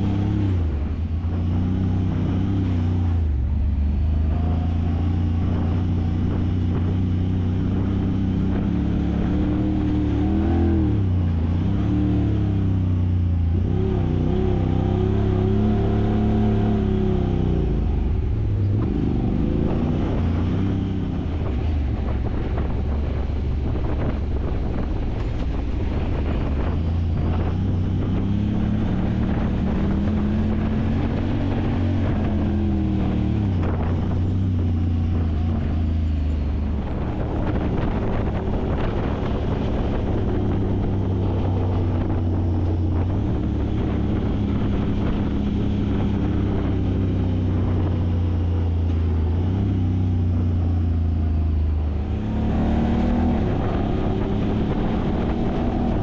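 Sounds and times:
utility vehicle engine running: 0:00.0 - 0:56.0
rushing ride noise: 0:13.4 - 0:56.0.

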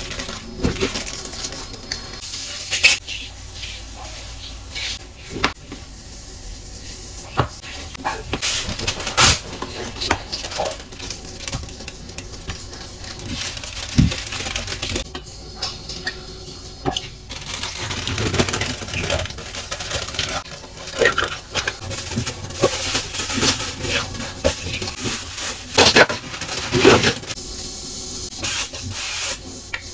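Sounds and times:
paper and foil crinkling: 0:00.0 - 0:03.0, 0:08.4 - 0:15.1, 0:17.3 - 0:27.4.

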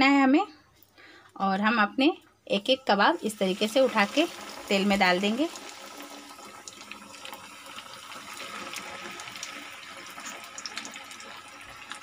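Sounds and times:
food deep-frying in hot oil: 0:02.7 - 0:12.0.

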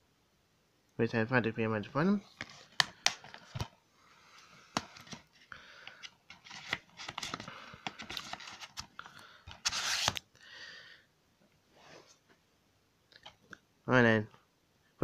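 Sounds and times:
plastic case clicking: 0:02.7 - 0:03.7.

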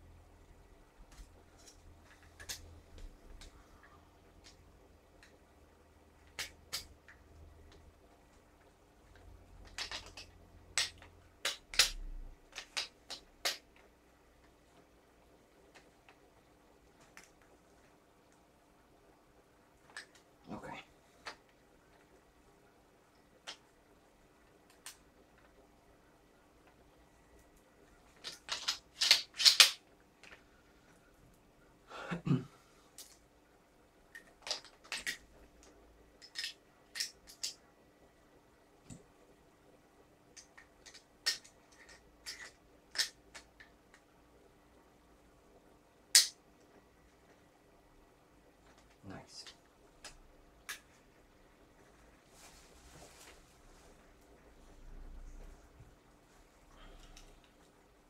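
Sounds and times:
metal parts clicking: 0:28.2 - 0:29.8.

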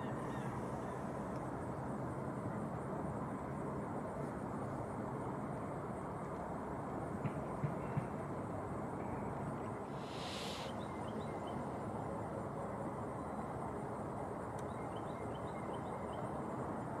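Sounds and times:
outdoor background rumble: 0:00.0 - 0:17.0
brief hiss: 0:10.0 - 0:10.8
small bird chirping: 0:10.0 - 0:11.6.

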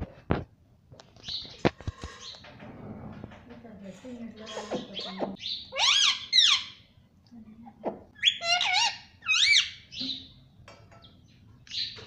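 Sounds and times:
parakeet shrill chirps: 0:05.0 - 0:06.8, 0:08.2 - 0:10.2.

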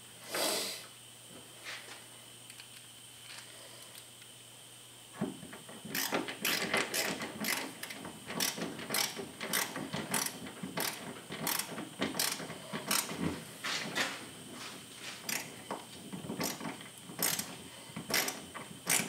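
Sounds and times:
ratcheting screwdriver clicking: 0:06.0 - 0:13.1, 0:15.3 - 0:15.5, 0:17.2 - 0:17.5, 0:18.1 - 0:19.0.

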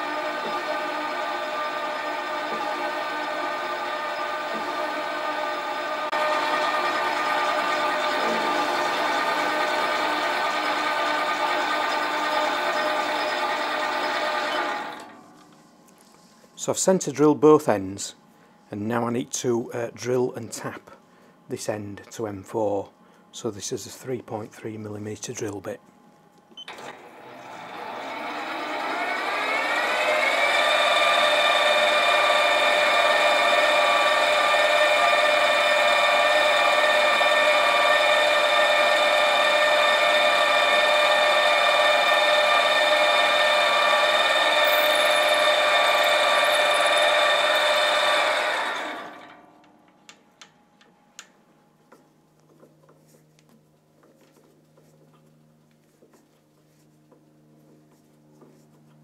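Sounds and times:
drill drilling metal bar: 0:00.0 - 0:15.1, 0:26.8 - 0:49.4
lathe motor whining: 0:00.0 - 0:15.4, 0:26.7 - 0:49.7.

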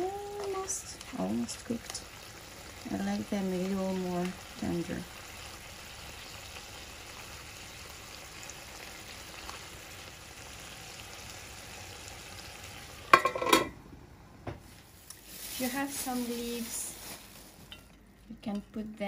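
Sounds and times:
meat sizzling in a frying pan: 0:00.0 - 0:13.6, 0:15.2 - 0:17.7
metal pan lid clattering: 0:13.1 - 0:13.8.

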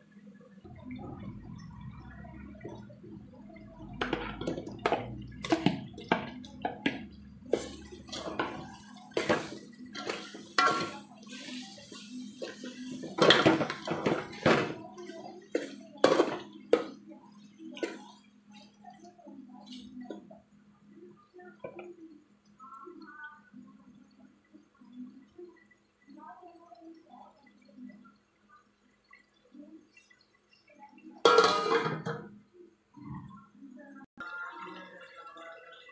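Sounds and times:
metal spoon scraping a pot: 0:07.5 - 0:16.4, 0:31.3 - 0:32.3.

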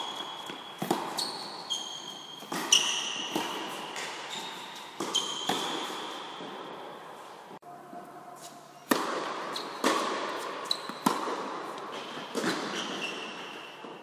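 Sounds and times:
tennis ball hit by racket: 0:00.0 - 0:01.2, 0:02.4 - 0:04.3, 0:05.0 - 0:06.6, 0:08.8 - 0:13.0
shoe squeaks: 0:00.0 - 0:06.8, 0:09.5 - 0:11.0, 0:12.5 - 0:13.8
tennis ball bouncing on court: 0:00.1 - 0:04.3, 0:05.0 - 0:06.6, 0:08.9 - 0:14.0.

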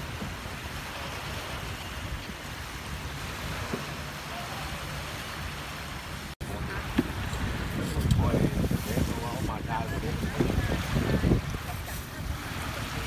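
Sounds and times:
small waves washing onto sand: 0:00.0 - 0:13.0
wind: 0:00.0 - 0:13.0
faint voices: 0:06.4 - 0:13.0.

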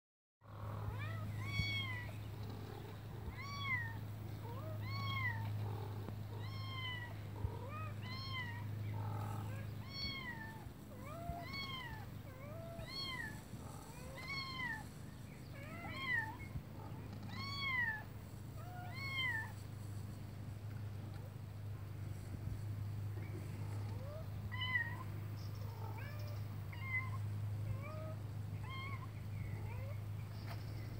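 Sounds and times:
kitten meowing: 0:00.9 - 0:02.1.

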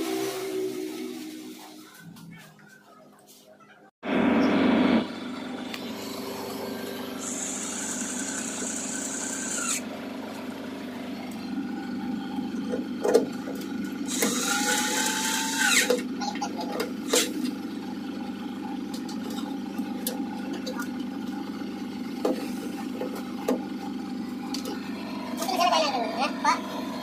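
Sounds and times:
electric screwdriver running: 0:07.2 - 0:09.8, 0:14.1 - 0:16.0.

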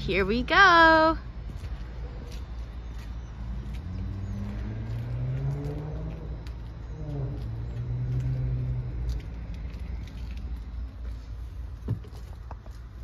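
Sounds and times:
vehicle engine revving: 0:03.4 - 0:10.1.

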